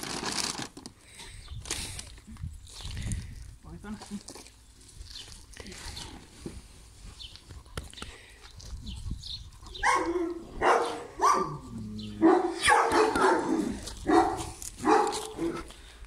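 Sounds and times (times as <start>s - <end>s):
dog barking: 9.8s - 15.6s.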